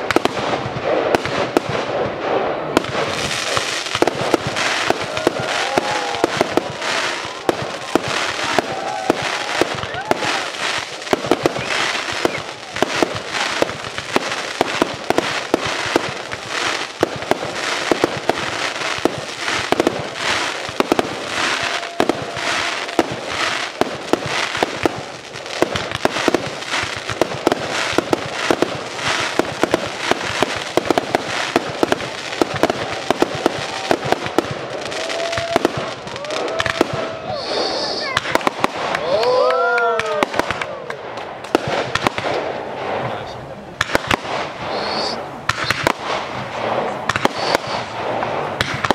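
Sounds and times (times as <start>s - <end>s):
fireworks bangs and crackling: 0.0s - 48.9s
firework whistles: 3.4s - 17.1s, 17.8s - 24.9s, 25.8s - 38.6s, 44.3s - 46.2s, 47.1s - 48.9s.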